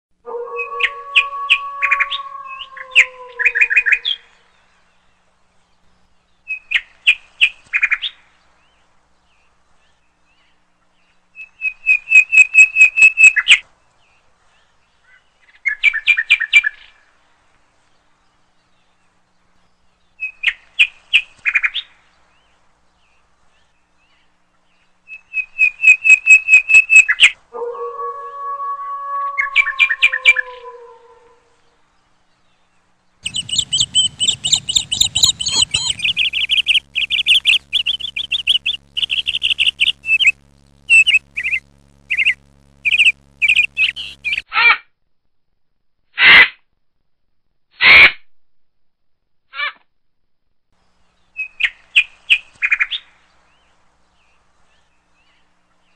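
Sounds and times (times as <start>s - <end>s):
wolf howling: 0.2s - 4.2s, 27.5s - 31.6s
songbird singing: 0.2s - 17.0s, 17.8s - 44.4s.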